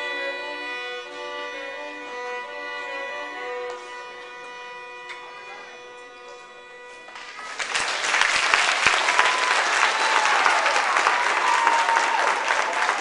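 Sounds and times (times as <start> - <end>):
music chord ringing: 0.0 - 7.8
audience applauding: 7.1 - 13.0.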